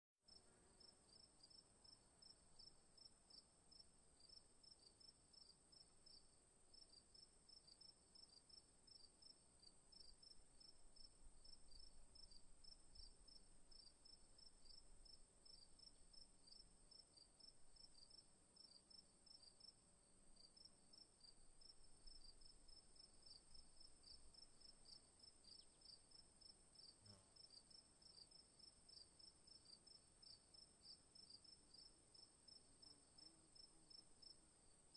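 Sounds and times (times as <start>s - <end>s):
insect chirping: 0.3s - 34.9s.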